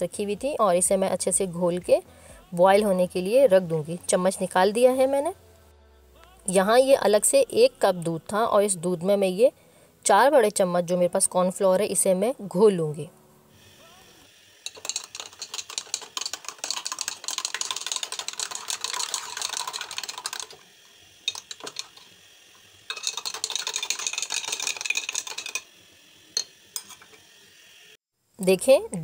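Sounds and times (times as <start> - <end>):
spoon clinking against glass: 14.6 - 19.4, 21.3 - 22.0, 22.9 - 25.7, 26.4 - 27.2.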